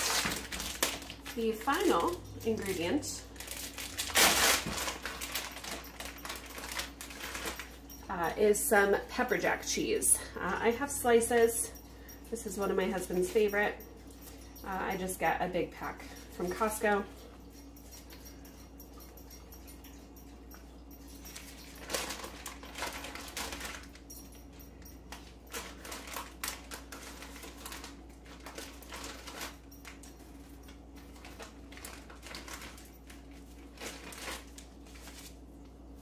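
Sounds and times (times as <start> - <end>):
plastic pack crinkling: 0.0 - 7.9, 21.3 - 24.1, 25.1 - 35.7
faint steady hum: 0.0 - 36.0.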